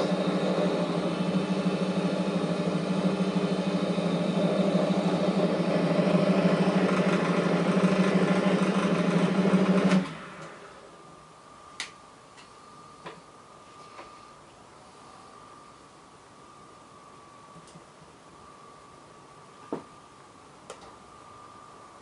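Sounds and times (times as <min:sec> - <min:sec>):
drill press motor humming: 0:00.0 - 0:11.2.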